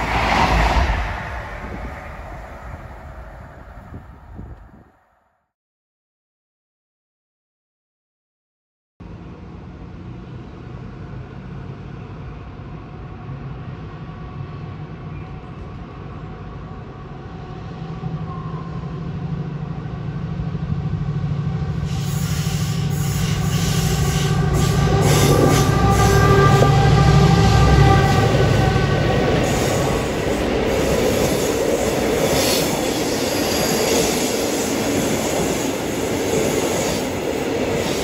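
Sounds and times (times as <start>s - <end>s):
diesel locomotive engine drone: 0.0s - 5.0s, 9.0s - 38.0s.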